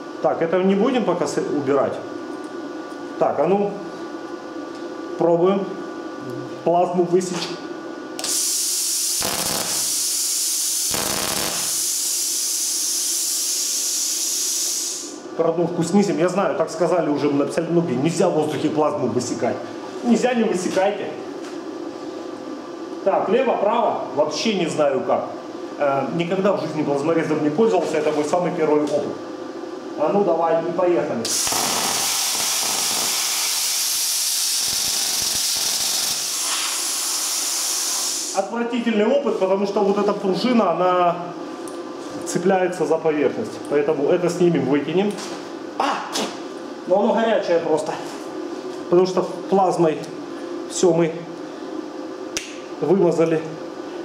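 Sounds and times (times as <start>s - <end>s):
electric arc crackling: 8.2s - 15.0s, 31.2s - 38.4s
plasma torch air hiss: 8.2s - 15.2s, 31.2s - 38.4s.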